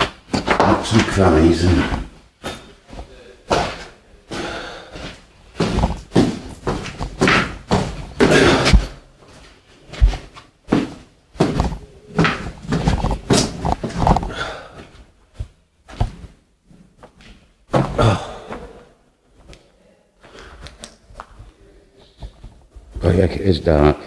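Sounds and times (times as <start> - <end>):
footsteps on floorboards: 0.0 - 18.8.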